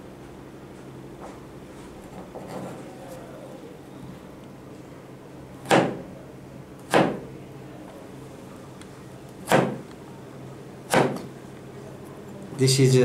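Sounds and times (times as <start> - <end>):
faint steady hum: 0.0 - 13.0
knife chopping carrot on board: 5.6 - 6.0, 6.9 - 7.2, 9.4 - 9.8, 10.9 - 11.3.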